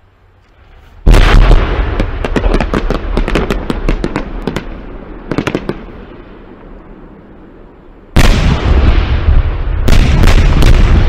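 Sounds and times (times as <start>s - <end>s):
fireworks crackling and popping: 0.8s - 6.8s, 8.1s - 11.0s
fireworks bang: 1.0s - 4.7s, 8.2s - 11.0s.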